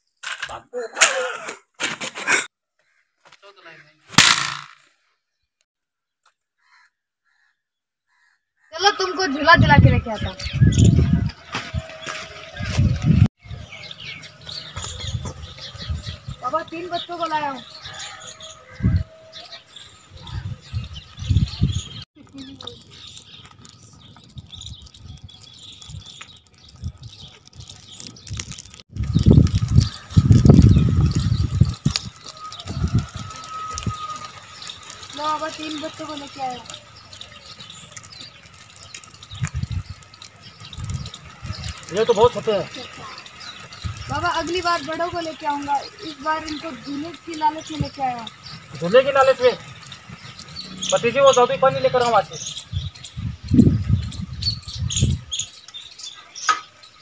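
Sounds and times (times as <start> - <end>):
wood fire crackling: 21.9 - 53.1
loud low rumbling: 28.3 - 55.2.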